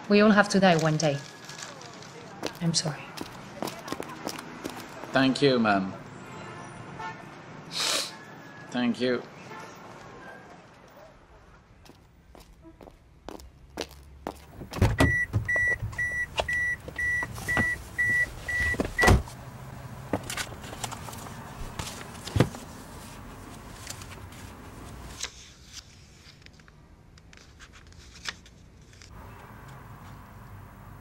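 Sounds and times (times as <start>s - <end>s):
papers rustling: 0.6s - 5.1s, 20.1s - 29.1s
car door shutting thud: 14.6s - 16.0s, 18.6s - 19.3s
door warning chime beeping: 14.8s - 19.2s.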